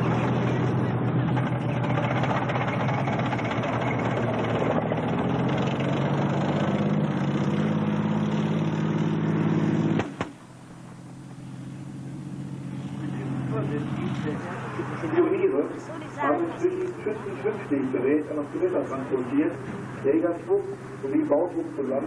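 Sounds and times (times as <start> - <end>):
heavy vehicle engine running: 0.0 - 22.0
quiet engine noise: 0.0 - 22.0.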